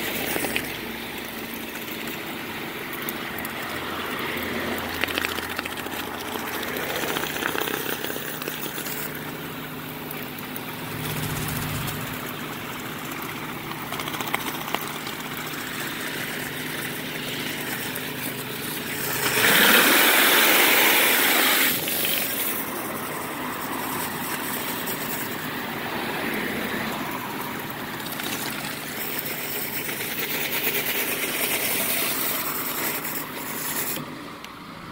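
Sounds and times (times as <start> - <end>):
spray bar hissing on concrete: 15.6 - 25.7, 28.6 - 34.1.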